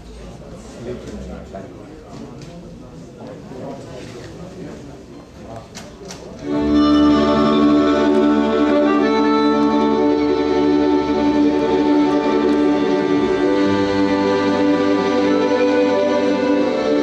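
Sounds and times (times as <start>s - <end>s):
accordion with folk ensemble: 6.4s - 17.0s.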